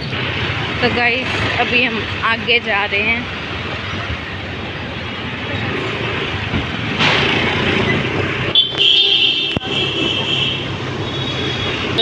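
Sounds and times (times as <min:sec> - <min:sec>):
busy market street noise: 0:00.0 - 0:12.0
traffic: 0:00.0 - 0:12.0.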